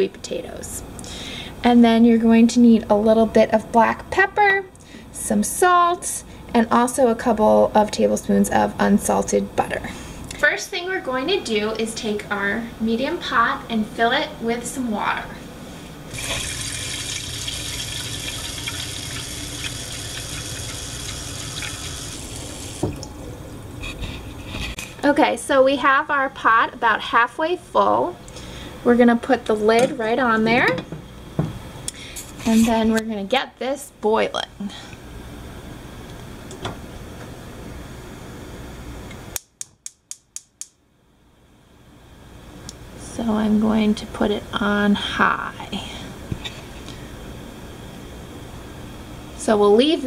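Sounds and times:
faucet water filling saucepan: 16.1s - 23.0s.

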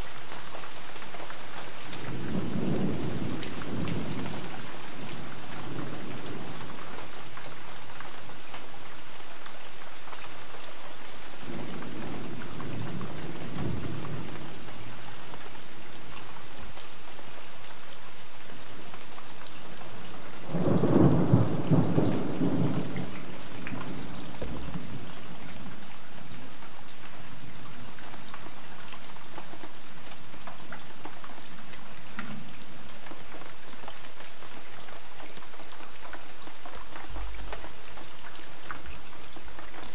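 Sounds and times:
light rain falling: 0.0s - 39.9s
thunder rumbling: 2.0s - 6.8s, 11.5s - 14.9s, 20.5s - 25.8s.

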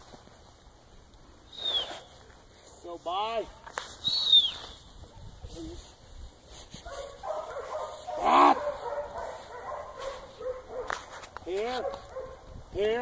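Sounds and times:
dog barking and yipping: 6.8s - 12.5s.

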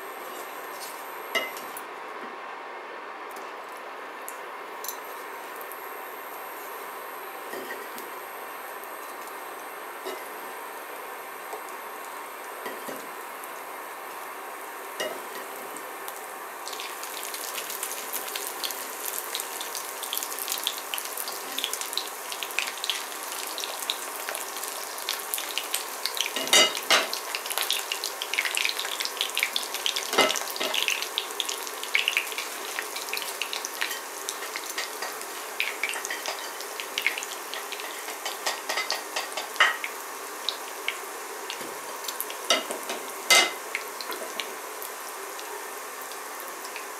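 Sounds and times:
oil crackling and sizzling: 5.0s - 46.9s.

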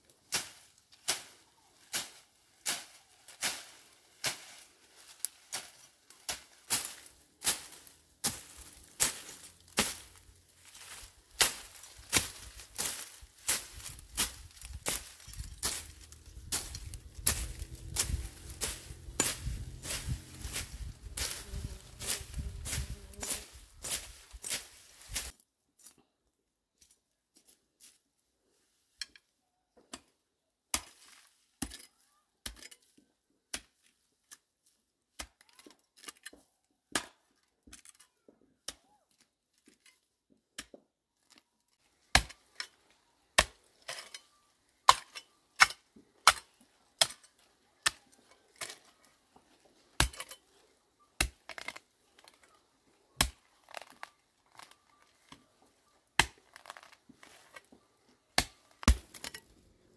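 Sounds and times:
sharp knocks and cracks: 58.4s - 59.4s.

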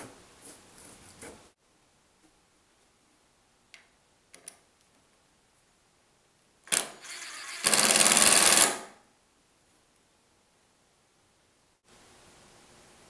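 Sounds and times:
cordless drill boring into wood: 6.7s - 8.9s.

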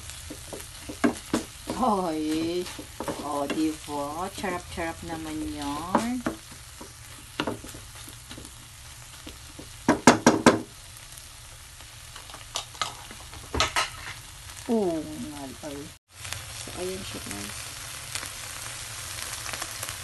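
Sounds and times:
low sizzle: 0.0s - 20.0s
spatula scraping frying pan: 0.1s - 9.8s.

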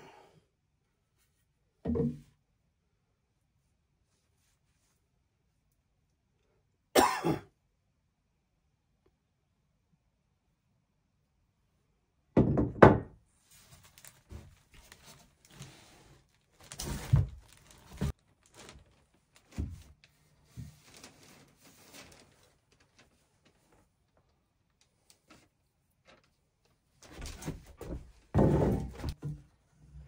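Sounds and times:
wooden boards knocking and clattering: 12.4s - 13.2s, 27.1s - 29.5s
wood scraping: 27.1s - 29.4s.

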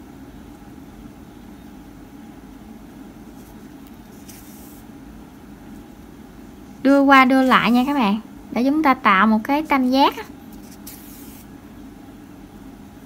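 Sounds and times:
low background hum: 0.0s - 13.0s
soft yarn rustles: 3.2s - 4.9s, 7.2s - 8.2s, 9.5s - 11.5s.

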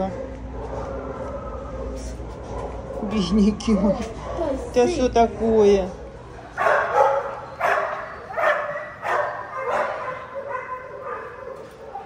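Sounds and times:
dog barking: 6.6s - 12.0s.

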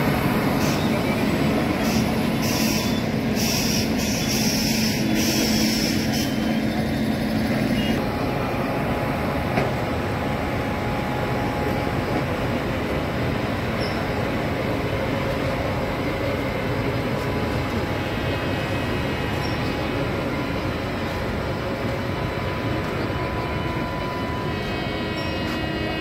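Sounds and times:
train wheels rumbling on track: 0.0s - 26.0s.

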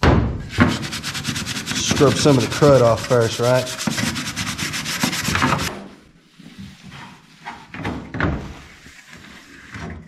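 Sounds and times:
hand scrubbing trim: 0.7s - 5.7s.

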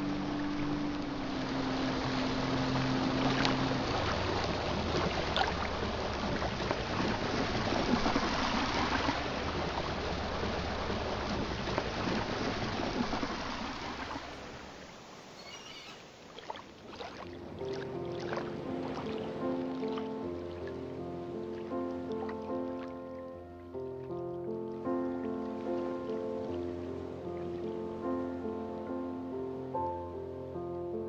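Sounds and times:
outboard motor running: 0.0s - 14.0s.

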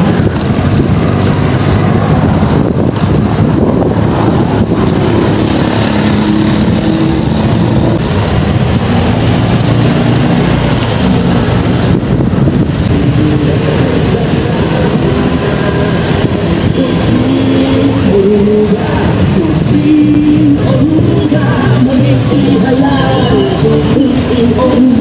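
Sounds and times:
passing vehicle engine hum: 0.0s - 25.0s
road traffic: 0.0s - 25.0s
wind rumbling on microphone: 0.0s - 25.0s.

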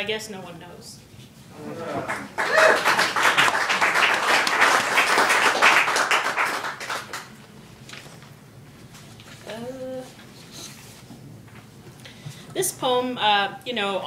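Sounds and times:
audience applauding: 1.7s - 7.3s.

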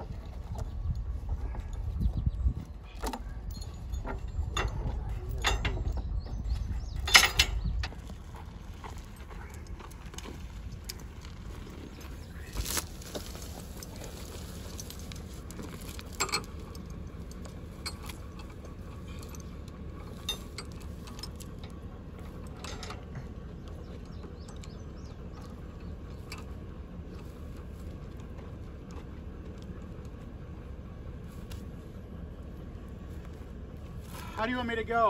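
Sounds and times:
steel chain clinking: 3.0s - 6.2s, 6.8s - 8.1s, 13.2s - 23.2s.

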